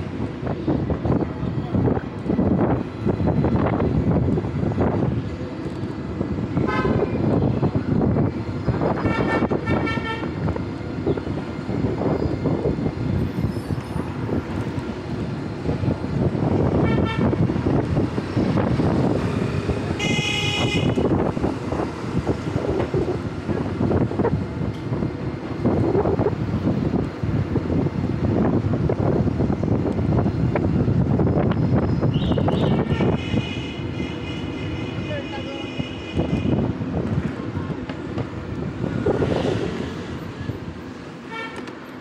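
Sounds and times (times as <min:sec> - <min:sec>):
wind buffeting microphone: 0:00.0 - 0:35.4, 0:36.0 - 0:41.2
vehicle horn beeps: 0:20.0 - 0:21.1, 0:32.1 - 0:36.6.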